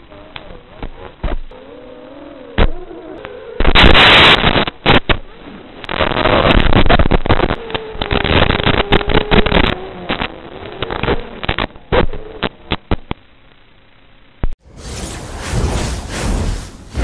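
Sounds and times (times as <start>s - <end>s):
radio static and hiss: 3.6s - 13.2s.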